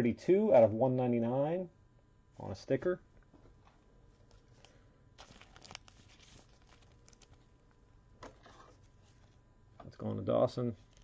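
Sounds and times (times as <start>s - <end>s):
plastic sleeve rustling: 3.5s - 9.4s, 10.7s - 11.0s.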